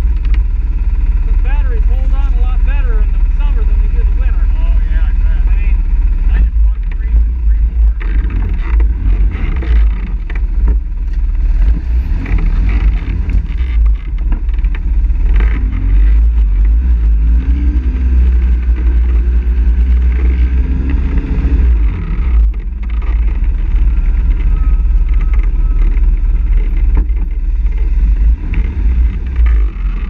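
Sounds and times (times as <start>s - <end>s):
quad engines running: 0.0s - 30.0s.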